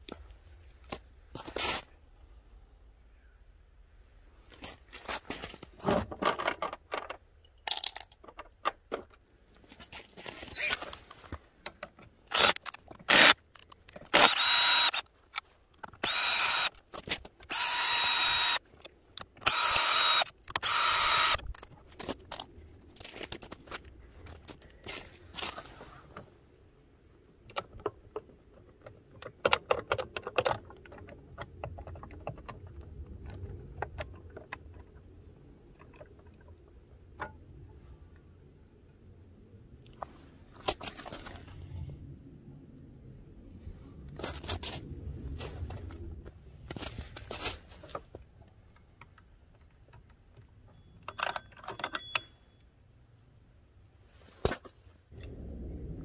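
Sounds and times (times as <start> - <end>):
clicks and knocks of metal parts: 5.8 - 9.3, 10.7 - 14.2, 14.8 - 17.5, 21.3 - 25.0, 27.4 - 37.7, 46.7 - 52.8
cordless drill spinning: 12.3 - 13.4, 14.1 - 15.0, 16.0 - 16.8, 17.4 - 18.6, 19.4 - 21.4.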